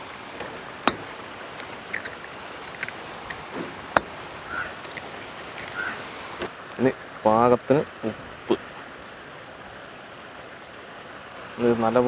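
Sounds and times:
steady background hiss: 0:00.0 - 0:12.0
eggs cracking on steel bowl: 0:00.8 - 0:05.9.

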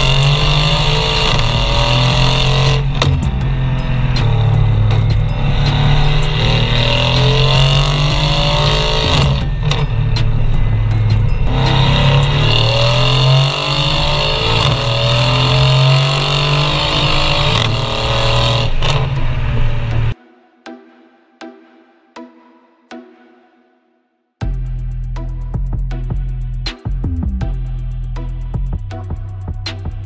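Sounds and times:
car engine accelerating hard: 0:00.0 - 0:20.2.

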